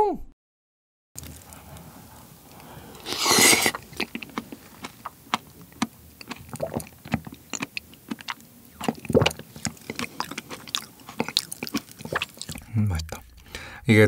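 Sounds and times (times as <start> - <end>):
wet slurp off a spoon: 1.2 - 13.2
squishy mouth sounds: 1.2 - 13.5.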